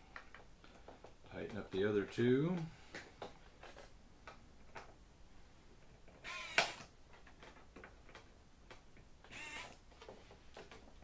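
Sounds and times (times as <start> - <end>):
electric screwdriver running: 6.2 - 6.9, 9.3 - 9.8.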